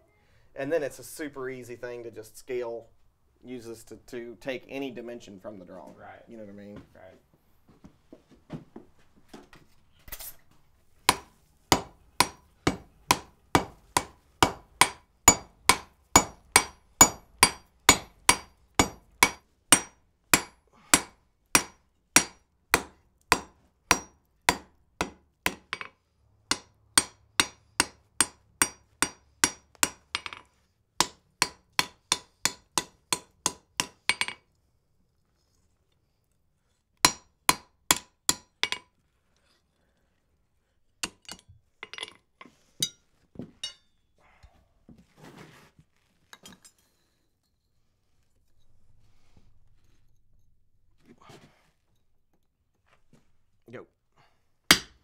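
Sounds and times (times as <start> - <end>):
hammer striking iron on anvil: 11.1 - 25.9, 26.5 - 34.4, 37.0 - 38.9, 41.0 - 42.1, 43.6 - 43.9, 54.7 - 55.0.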